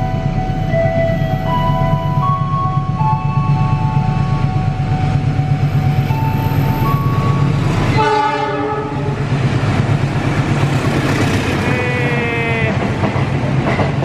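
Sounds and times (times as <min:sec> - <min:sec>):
diesel locomotive engine running: 0:00.0 - 0:14.0
train horn blast: 0:07.8 - 0:09.2.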